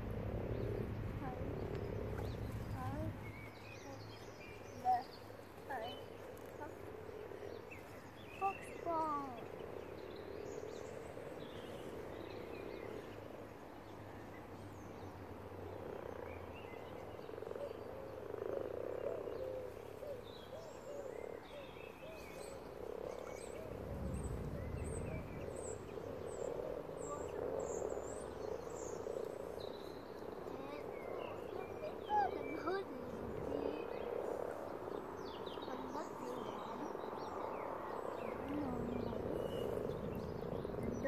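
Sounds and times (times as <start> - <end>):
frogs croaking in chorus: 0.0 - 41.0
low rumble: 23.2 - 28.7.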